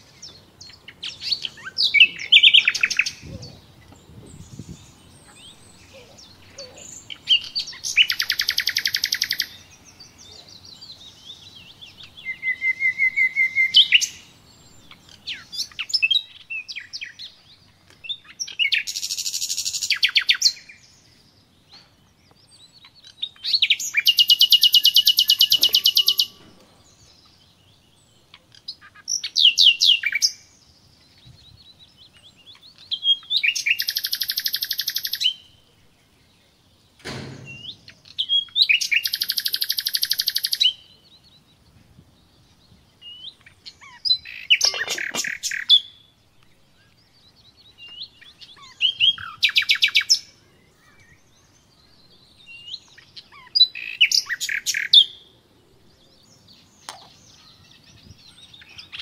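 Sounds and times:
songbird singing trilled phrases: 0.0 - 59.0
short knock: 37.0 - 37.8.

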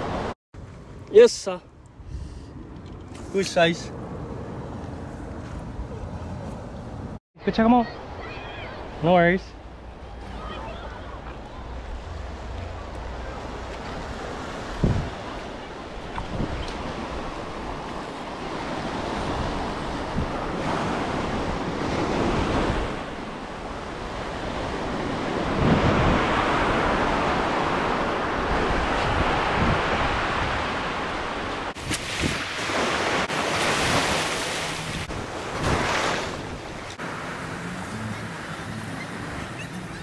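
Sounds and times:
ocean surf over rocks: 8.0 - 39.8
wind on microphone: 13.8 - 18.0, 19.0 - 32.5.

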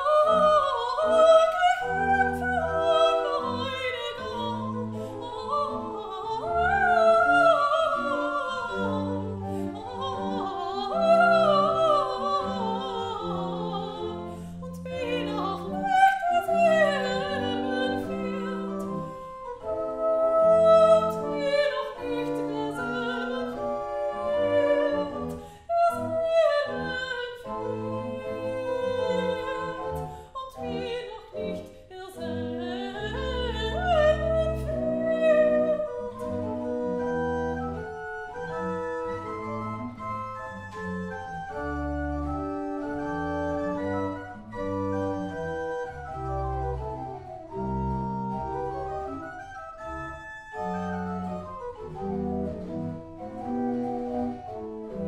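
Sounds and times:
soprano singing: 0.0 - 55.0
pipe organ playing: 15.2 - 25.4, 33.1 - 55.0.

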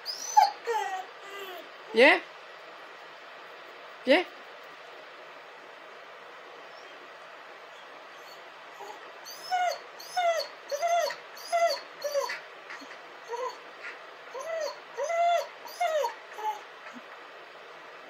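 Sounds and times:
dog whining: 0.0 - 1.8, 7.7 - 17.2.

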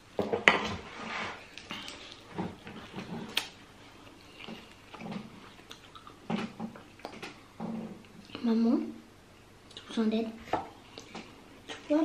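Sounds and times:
chewing and wet mouth sounds: 1.5 - 8.5.

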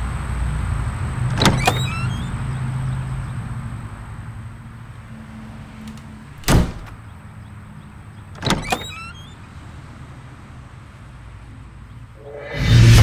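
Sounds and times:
wardrobe door clack: 1.3 - 2.3, 5.9 - 7.0, 8.4 - 9.3
wardrobe door squeak: 1.3 - 2.6, 6.4 - 7.0, 8.4 - 9.4
music: 12.2 - 13.0.

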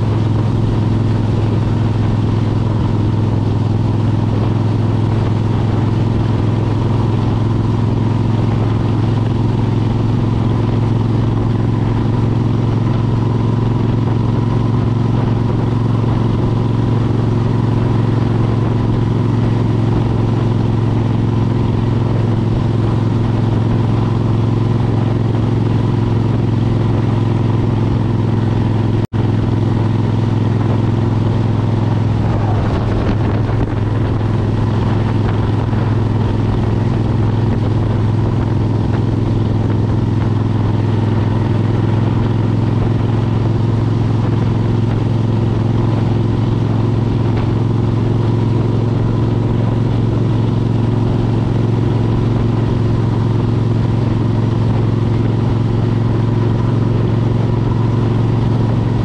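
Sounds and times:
motorcycle engine cruising: 0.0 - 59.0.

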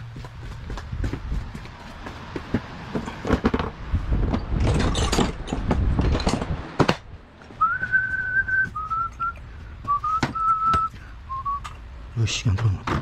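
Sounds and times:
hand tools clattering together: 4.6 - 6.5
person whistling a tune: 7.6 - 11.8.

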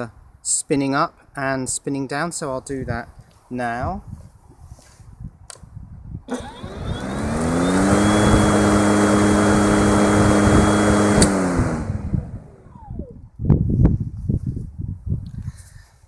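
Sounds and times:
electric lawnmower motor whine: 6.3 - 13.1
lawnmower switch click: 10.3 - 11.9.

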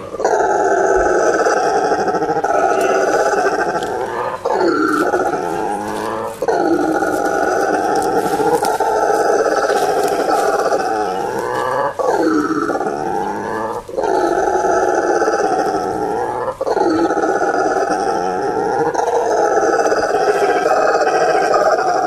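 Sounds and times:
howler monkey howling: 0.0 - 22.0.

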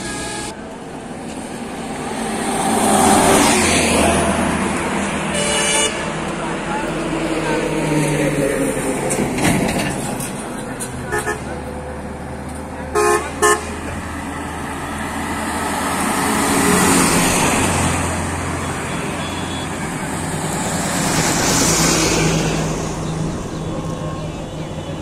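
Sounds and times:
vehicle horn toots: 0.0 - 0.6, 5.3 - 6.0, 12.9 - 13.8, 18.8 - 19.9
truck passing close: 0.0 - 25.0
car passing: 1.5 - 5.4, 13.7 - 24.9.

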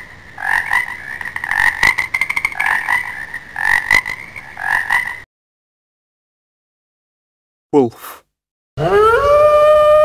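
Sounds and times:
frog croaking: 0.0 - 5.3
frog rattling trill: 0.4 - 5.2.

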